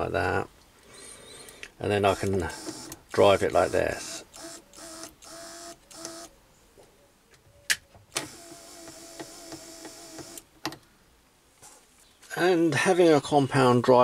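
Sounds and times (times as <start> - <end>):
small electric motor whining: 2.1 - 6.3, 8.2 - 10.4.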